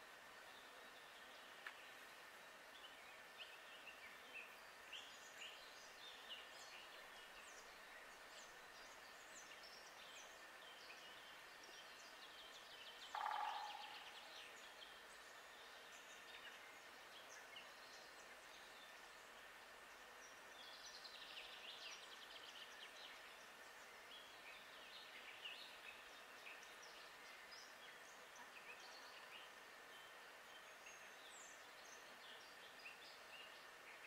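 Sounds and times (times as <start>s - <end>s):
small birds chirping: 0.6s - 34.0s
bird trill: 13.1s - 14.1s.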